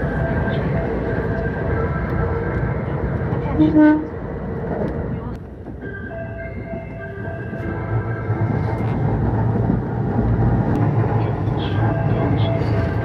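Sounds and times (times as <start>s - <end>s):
train running rumble: 0.0s - 13.0s
train music horn tune: 3.5s - 4.1s.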